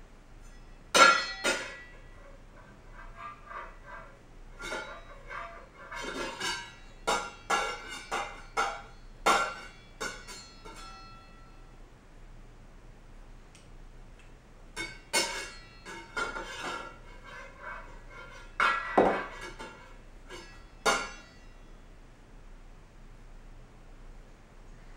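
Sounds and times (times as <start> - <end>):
metal pot lid clanging on floor: 1.0 - 2.3, 4.6 - 11.2, 14.8 - 21.4.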